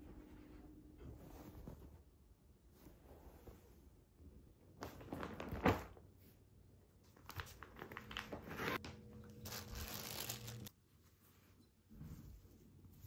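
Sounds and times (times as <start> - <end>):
plastic bag crinkling: 9.2 - 10.7.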